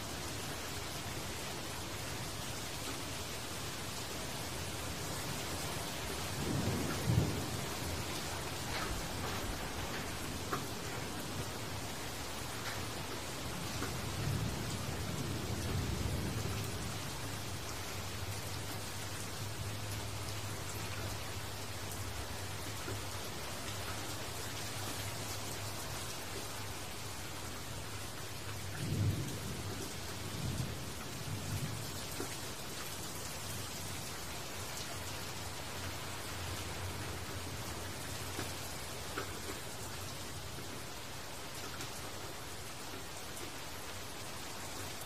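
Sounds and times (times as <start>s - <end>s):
rain falling on leaves: 0.0s - 45.0s.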